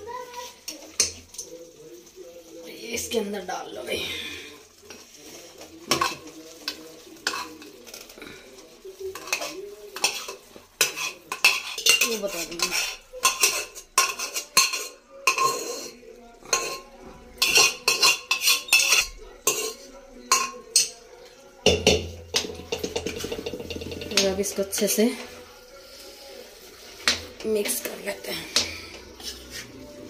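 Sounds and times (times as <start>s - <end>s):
metal spoon scraping pots: 5.9s - 8.4s, 9.0s - 21.0s, 21.7s - 25.4s, 26.8s - 30.0s.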